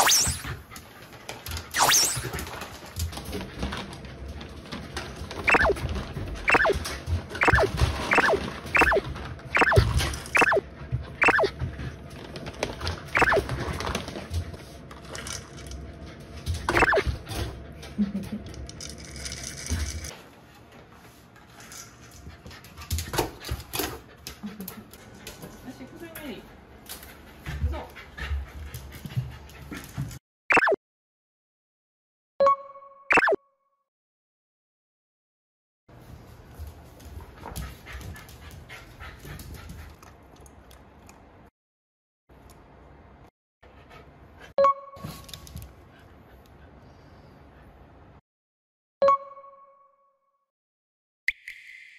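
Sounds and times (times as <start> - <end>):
puppy yelping: 5.5 - 5.8, 6.5 - 6.8, 7.4 - 9.0, 9.6 - 10.6, 11.2 - 11.5, 13.2 - 13.5
puppy whining: 7.4 - 9.0
paws clicking on wooden floor: 22.0 - 30.2, 36.4 - 41.2.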